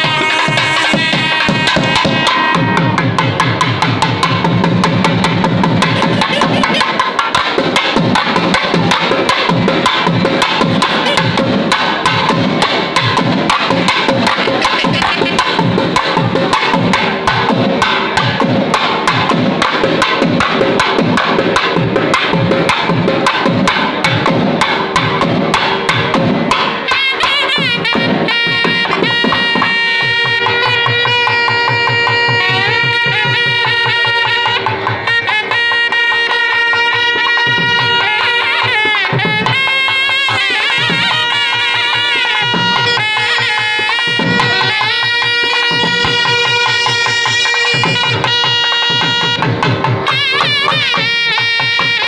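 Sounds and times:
double-reed pipes playing melody: 0.0 - 3.6, 5.2 - 7.4, 10.3 - 12.2, 13.5 - 17.2, 26.8 - 52.0
fast drumming: 0.0 - 52.0.

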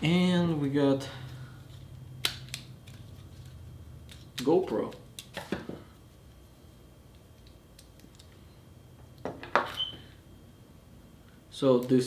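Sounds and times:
clicks of gadgets being handled: 7.1 - 8.4.

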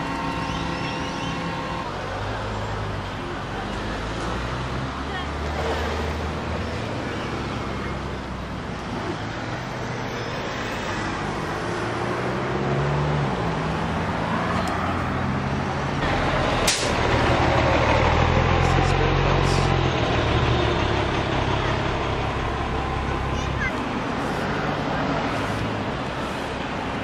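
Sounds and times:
heavier engine: 0.0 - 27.0
vehicle engines passing: 0.0 - 27.0
sharp click: 16.7 - 17.0.

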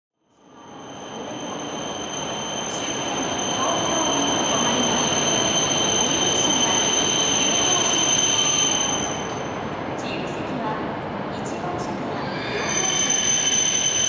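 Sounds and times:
train running noise: 0.5 - 14.0
high-pitched squeal: 0.6 - 9.6, 12.2 - 14.0.

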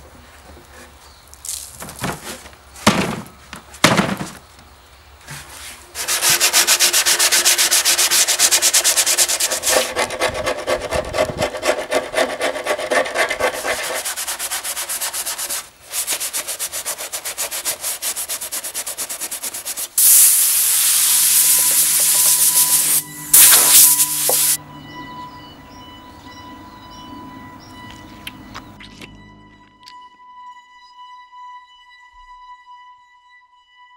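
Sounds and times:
hand sanding wood: 5.4 - 24.6
air blow gun hissing: 20.0 - 24.6.

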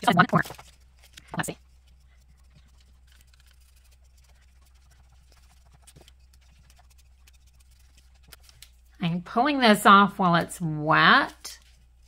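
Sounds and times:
paintbrush dabbing and tapping: 1.3 - 8.6.

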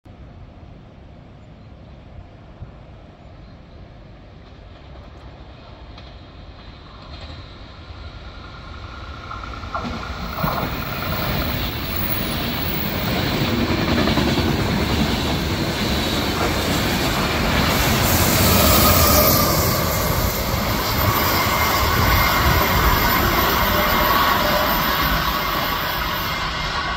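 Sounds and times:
train wheels clattering on rails: 4.3 - 26.9
thin wheel squeal: 18.1 - 26.3.

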